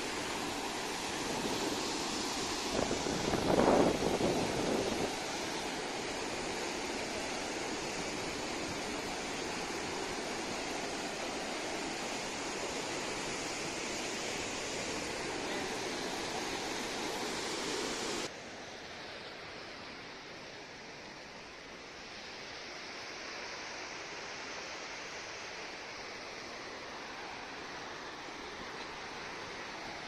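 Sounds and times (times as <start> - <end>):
rushing rapids: 0.0 - 30.0.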